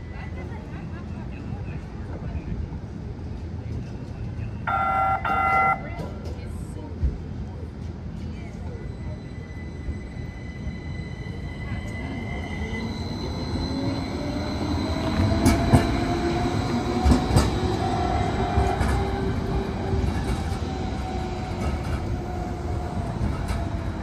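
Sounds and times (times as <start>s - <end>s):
light rail car whine and rumble: 0.0s - 24.0s.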